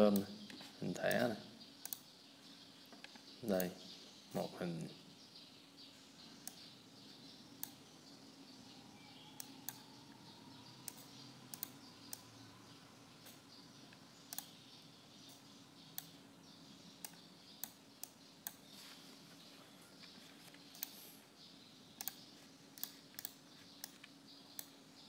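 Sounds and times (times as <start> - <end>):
faint background hum: 0.0 - 25.0
computer mouse clicking: 1.8 - 2.1, 7.6 - 7.8, 9.4 - 9.8, 10.8 - 12.2, 13.2 - 13.4, 14.3 - 14.6, 17.0 - 18.6, 20.5 - 21.0, 22.0 - 24.8.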